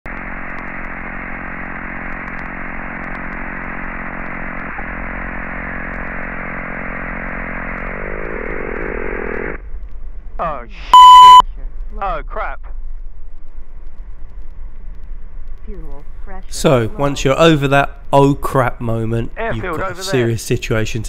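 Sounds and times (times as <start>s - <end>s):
engine winding down: 0.1s - 9.6s.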